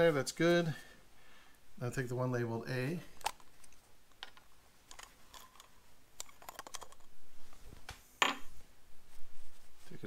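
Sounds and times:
small plastic parts clicking: 3.2 - 7.1.

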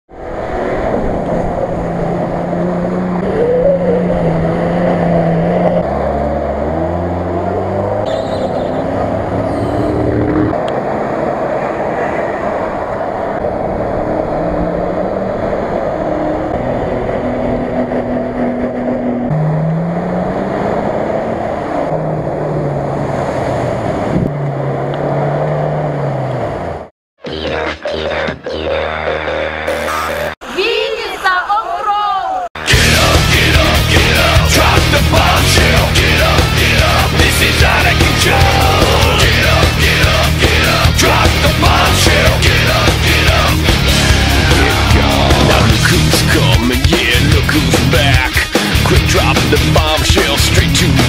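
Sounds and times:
off-road engines revving: 0.2 - 26.9, 32.6 - 51.0
muddy water rushing and splashing: 10.5 - 25.9.

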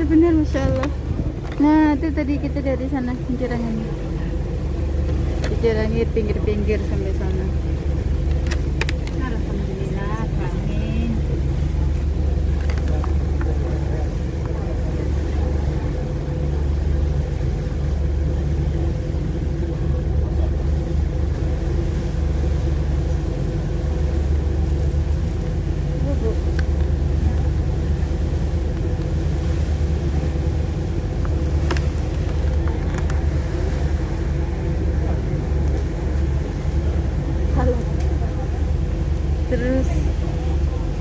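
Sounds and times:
ferry engine droning: 0.0 - 41.0.

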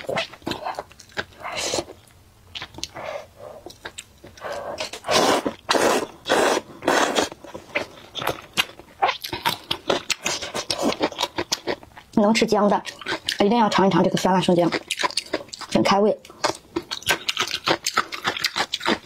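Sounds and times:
wet chewing: 0.0 - 19.0
noodles slurped: 4.5 - 7.9.

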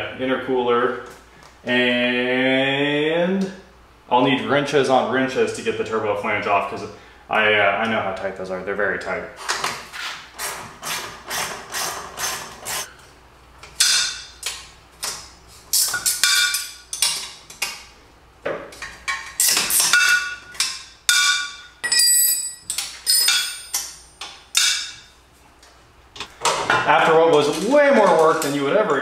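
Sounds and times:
wrenches knocking on metal: 23.1 - 24.0.

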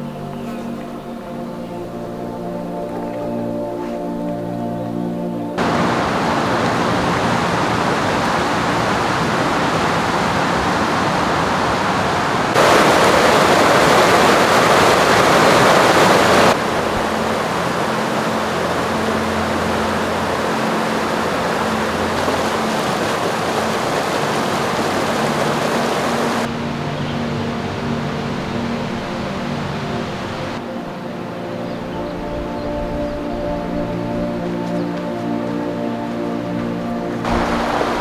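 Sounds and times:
creek rushing over rocks: 5.6 - 26.7, 36.8 - 38.0.

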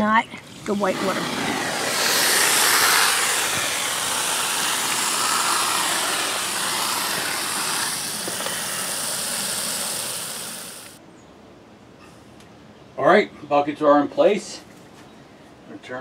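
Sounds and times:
water from hose rushing into bucket: 0.4 - 11.0.

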